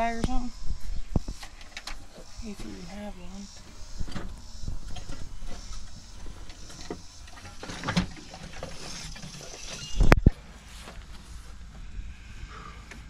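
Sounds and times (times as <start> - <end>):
wind rumbling on microphone: 0.0 - 10.4.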